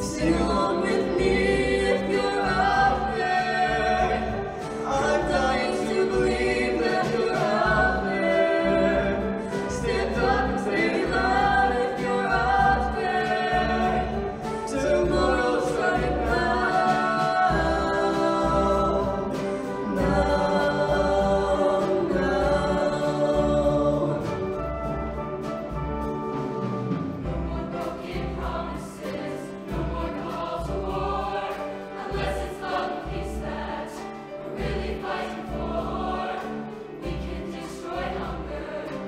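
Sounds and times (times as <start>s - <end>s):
choir singing a pop ballad: 0.0s - 39.0s
live band with low beat: 0.0s - 39.0s.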